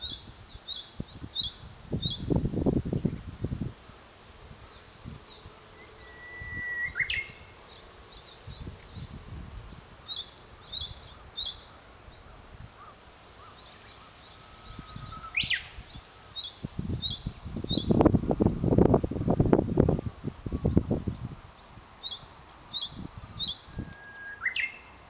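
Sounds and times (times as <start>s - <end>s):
songbirds chirping: 0.0s - 18.9s, 20.1s - 25.0s
bird whistled note with flourish: 23.0s - 24.9s.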